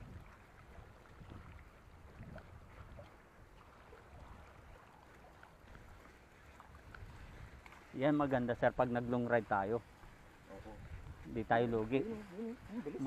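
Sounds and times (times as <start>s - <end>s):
small ticks from bike: 5.3s - 7.9s.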